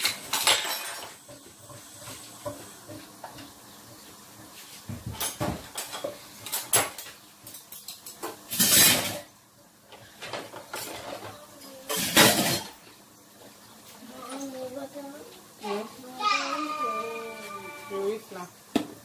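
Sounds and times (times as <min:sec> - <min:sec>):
metal cookware clattering: 0:00.0 - 0:03.0, 0:05.1 - 0:12.9.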